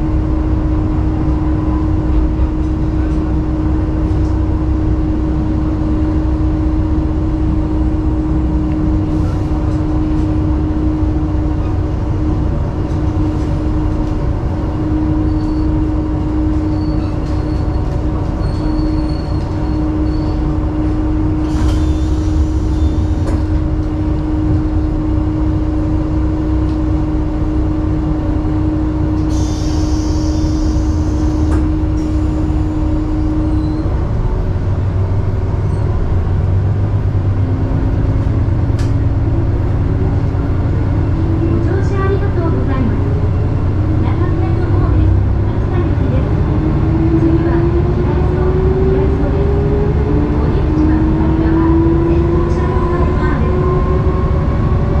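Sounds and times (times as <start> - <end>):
diesel railcar engine drone: 0.0 - 55.0
wheels rumbling on rails: 0.0 - 55.0
faint high squeals: 16.6 - 17.8, 18.4 - 20.5, 32.1 - 34.0.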